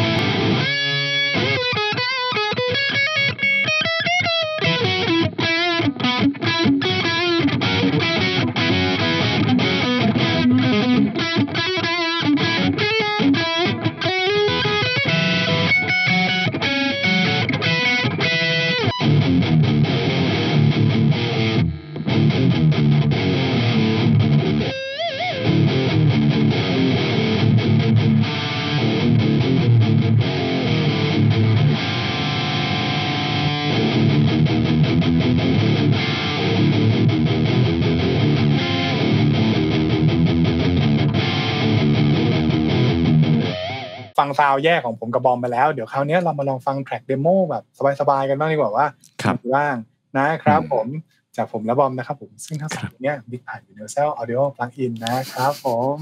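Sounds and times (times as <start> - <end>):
overdriven electric guitar lead: 0.0 - 44.2, 50.5 - 50.8
distorted electric guitar riffing: 0.0 - 44.5, 48.2 - 51.0.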